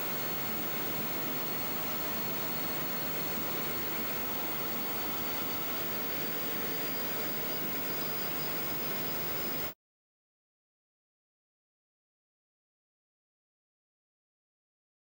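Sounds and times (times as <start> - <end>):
faint high whine: 0.0 - 9.8.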